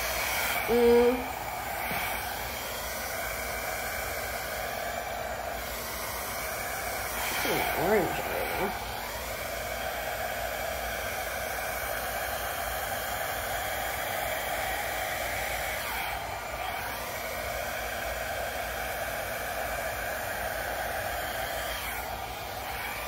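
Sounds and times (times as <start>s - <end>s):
hair dryer blowing: 0.0s - 23.0s.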